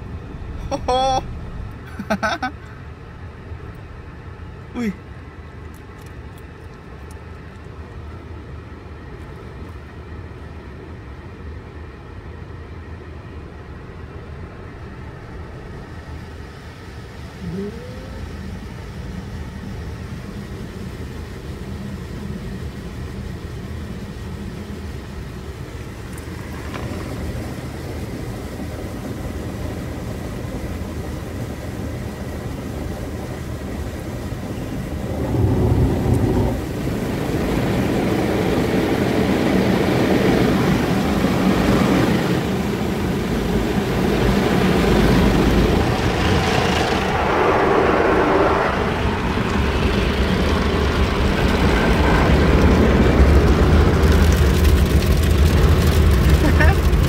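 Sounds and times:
heavy rumble: 0.0 - 6.0, 13.3 - 57.0
steady hum: 0.0 - 54.0
water jets spraying on car: 0.6 - 1.2, 1.8 - 2.6, 14.8 - 57.0.

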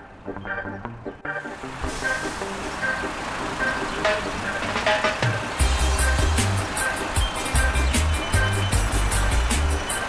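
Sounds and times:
bass-heavy beat with high ticks: 3.8 - 10.0.

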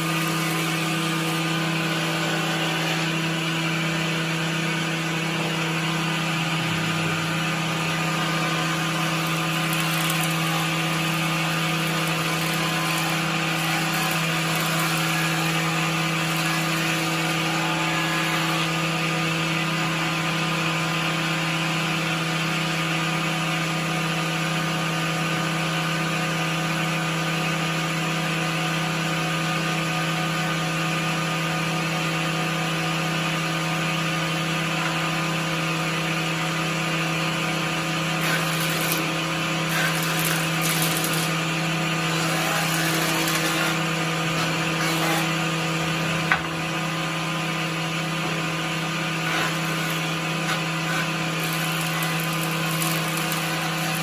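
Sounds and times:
hissing wood cutting: 0.0 - 19.3, 38.1 - 46.3, 49.0 - 54.0
jointer motor hum: 0.0 - 20.0, 37.8 - 46.8, 48.1 - 54.0.

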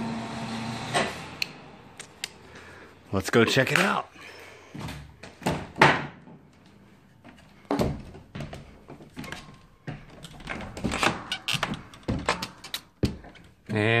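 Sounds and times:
thumps on wooden ladder treads: 7.2 - 13.8.

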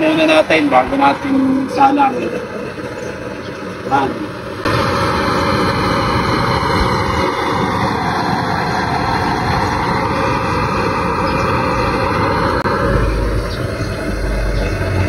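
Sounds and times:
electric blower rushing air: 0.0 - 15.0.

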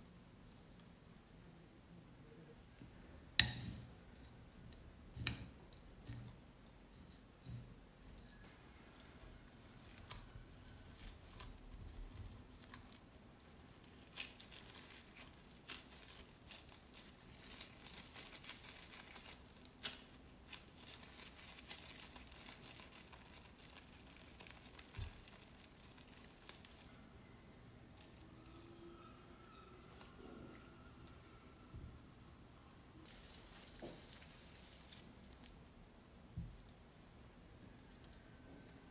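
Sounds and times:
disposable gloves rustling: 8.6 - 27.0, 33.0 - 35.6.

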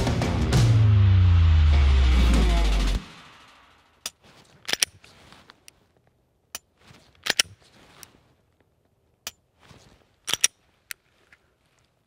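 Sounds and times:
pistol metallic clicks: 4.0 - 5.0, 6.5 - 7.6, 10.3 - 10.6.

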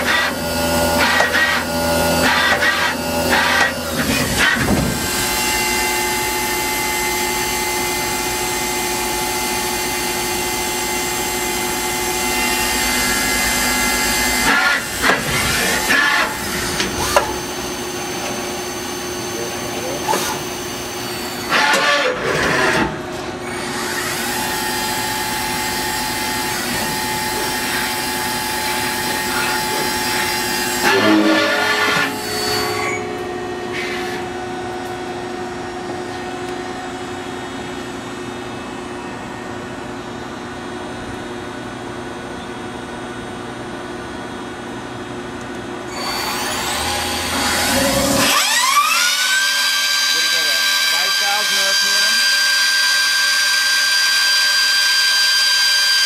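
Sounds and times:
lathe machine whine: 0.0 - 56.0.

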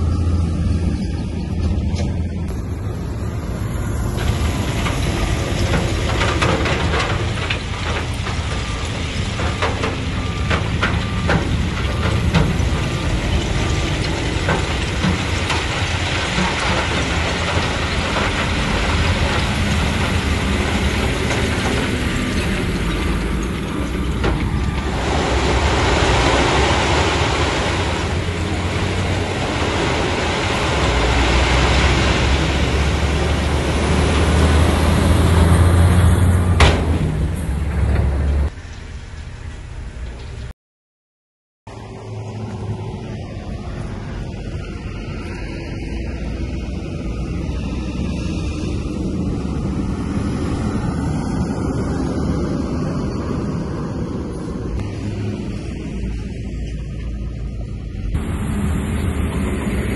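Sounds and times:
bulldozer diesel engine running: 0.0 - 40.5, 41.7 - 59.9
metal clanks: 36.6 - 38.5.

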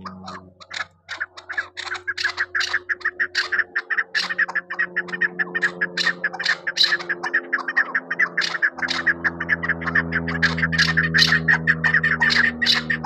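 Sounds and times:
faint low hum: 0.0 - 13.0
partridge calling harsh chuk notes: 0.0 - 13.0.

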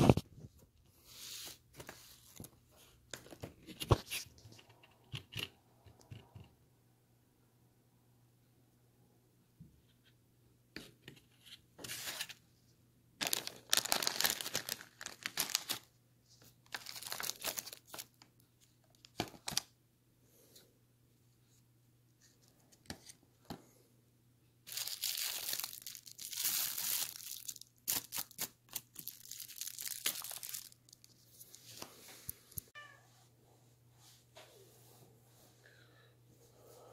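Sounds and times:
food wrapping crinkling and tearing: 13.2 - 15.9, 16.7 - 18.3, 24.7 - 31.2.

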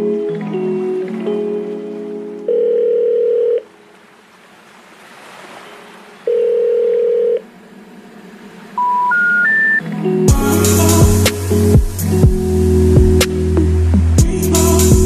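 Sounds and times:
steady electronic tone: 7.6 - 15.0
short rising beeps: 8.8 - 9.8.

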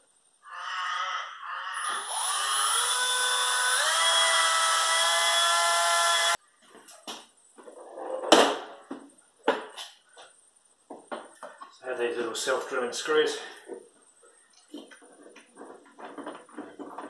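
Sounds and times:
cordless drill whining: 0.7 - 6.4
knocks and clunks: 14.7 - 17.0.

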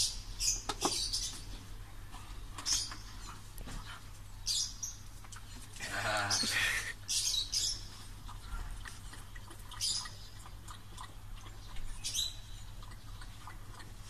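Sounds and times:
dog lapping water: 8.0 - 14.0.

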